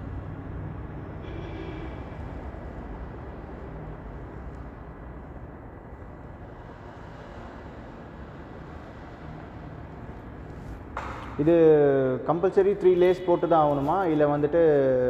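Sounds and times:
low rumbling background noise: 0.0 - 15.0.

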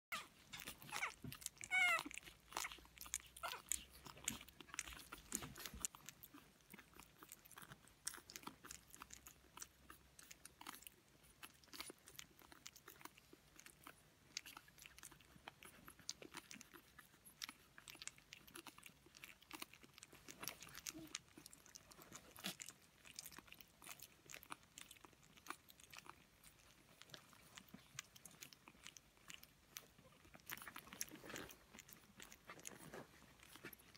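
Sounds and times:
puppy squeak: 0.1 - 2.8
puppies eating and licking: 0.1 - 33.9.

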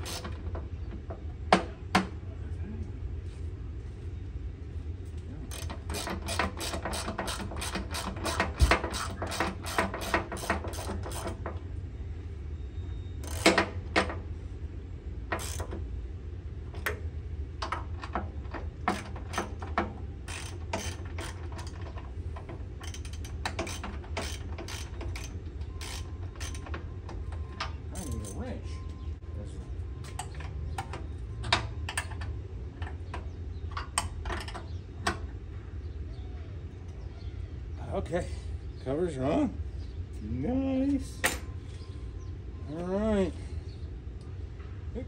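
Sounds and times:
ratchet wrench clicking: 5.5 - 11.4, 13.2 - 13.8, 15.4 - 15.8, 18.9 - 21.8, 22.8 - 26.7.

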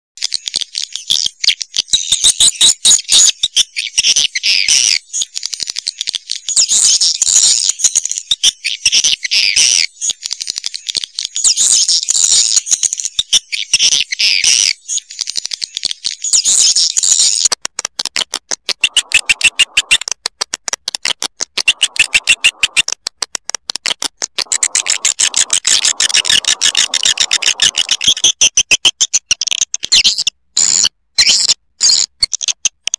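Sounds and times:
high-pitched bird twittering: 18.8 - 20.0, 21.6 - 22.8, 24.4 - 28.4
fast train of clicks: 23.8 - 28.2.

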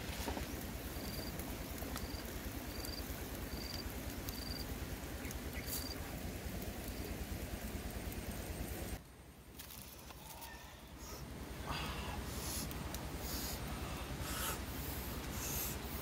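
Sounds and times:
fire crackles: 0.0 - 16.0
wood fire hissing: 0.0 - 16.0
insect chirping: 0.3 - 6.1.

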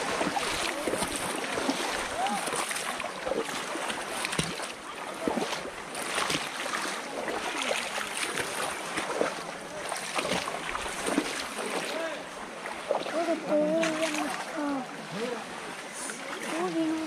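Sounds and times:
shallow water sloshing and splashing: 0.0 - 17.0.

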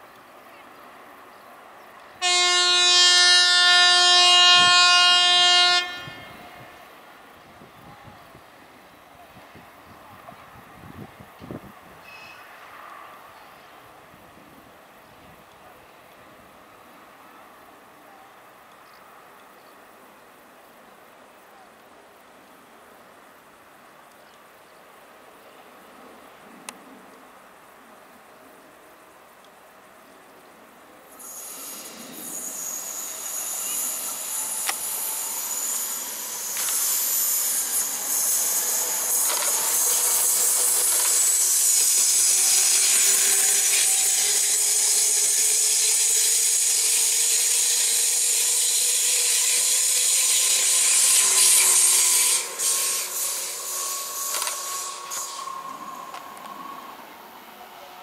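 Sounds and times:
thin electric whine: 31.1 - 58.0
train wheels on rails: 31.1 - 58.0.

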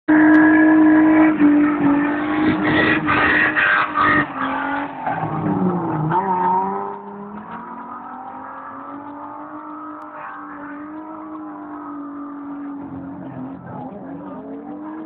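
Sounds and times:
race car engines at high revs: 0.1 - 15.0.

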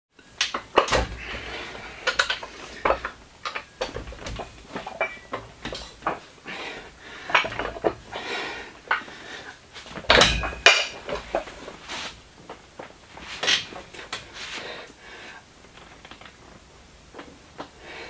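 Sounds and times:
iron dumbbell plates clanking: 0.6 - 9.1, 10.0 - 11.8.

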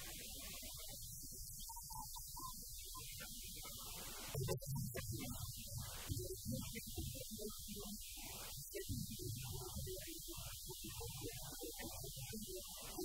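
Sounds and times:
muffled garbled man's voice: 3.0 - 13.0.

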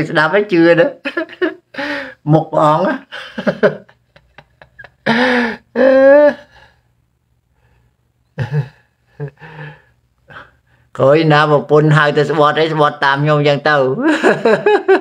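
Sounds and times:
man laughing: 1.0 - 1.9, 3.0 - 6.6, 8.3 - 9.7, 14.0 - 15.0.

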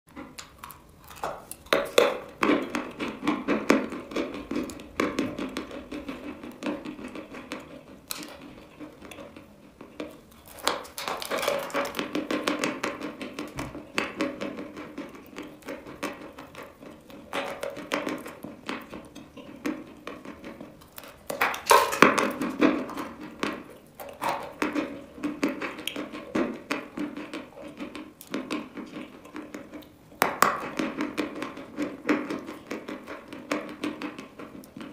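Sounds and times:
chalk crunching as it is chewed: 0.2 - 12.5.

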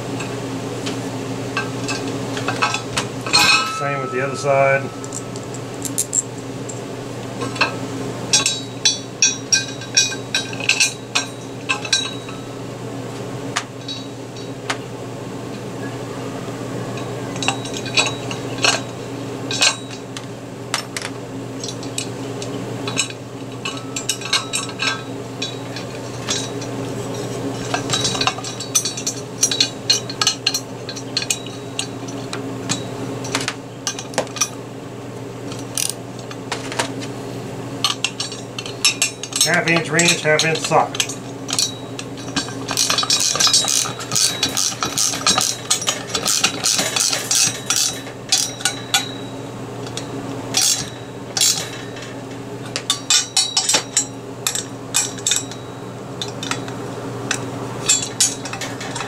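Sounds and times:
steady low hum: 0.0 - 59.0
metal bolts clinking: 1.6 - 12.5, 13.8 - 14.8, 22.9 - 34.6, 37.8 - 59.0.

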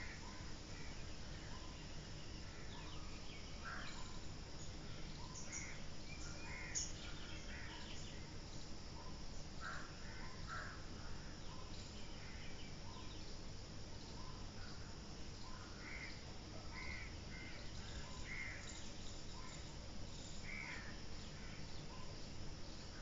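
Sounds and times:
low background noise: 0.0 - 23.0
crows cawing: 6.5 - 6.8, 9.6 - 10.8, 15.8 - 17.6, 18.3 - 18.6, 20.4 - 21.6.

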